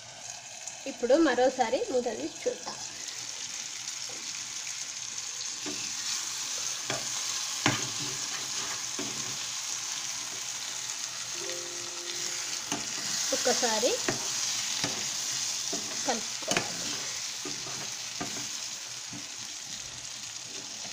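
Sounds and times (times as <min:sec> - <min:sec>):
curry sizzling in a pan: 0:00.0 - 0:20.9
spoon stirring: 0:14.0 - 0:18.5.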